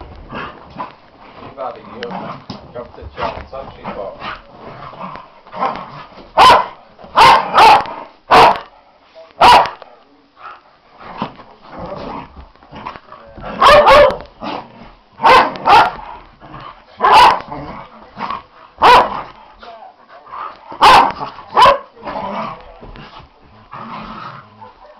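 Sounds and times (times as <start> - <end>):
dogs growling: 0.0 - 6.2, 10.4 - 24.9
dogs barking: 6.4 - 8.7, 9.4 - 9.8, 13.5 - 14.3, 15.2 - 16.0, 17.0 - 17.5, 18.8 - 19.3, 20.7 - 22.0, 24.6 - 24.9.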